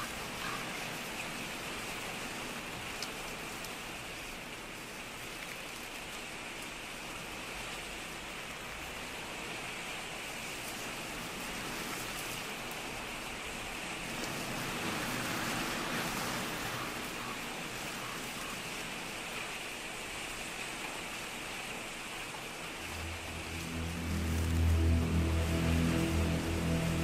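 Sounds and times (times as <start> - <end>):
steady rain-like rushing noise: 0.0 - 27.0
deep low droning tone: 22.8 - 27.0.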